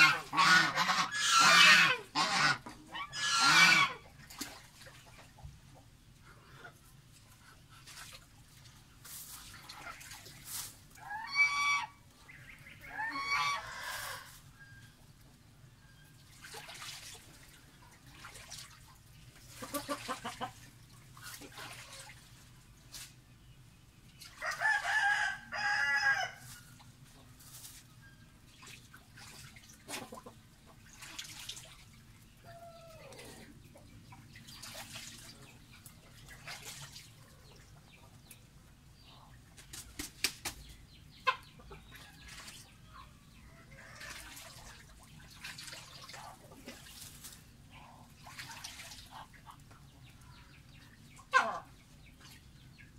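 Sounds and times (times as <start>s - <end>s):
fowl calling: 0.0s - 4.0s, 11.0s - 14.8s.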